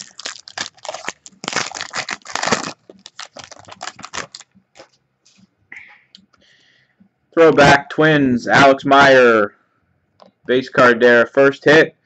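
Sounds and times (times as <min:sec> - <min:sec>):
card pack wrapper tearing and crinkling: 0:00.0 - 0:04.5.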